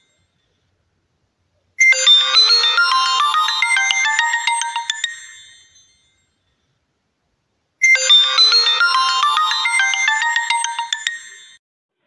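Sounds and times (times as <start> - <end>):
phone ringtone melody: 1.8 - 5.8, 7.8 - 11.6.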